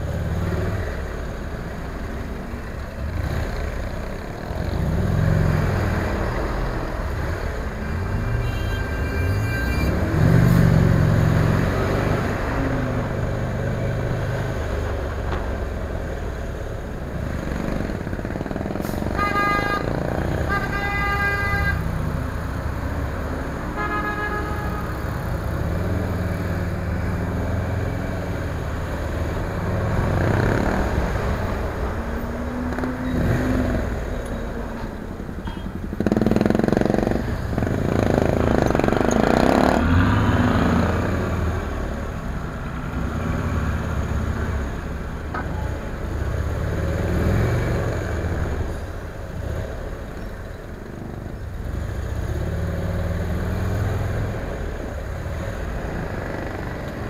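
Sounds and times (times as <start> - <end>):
traffic noise: 0.0 - 57.0
motorcycle engine revving: 35.8 - 41.5.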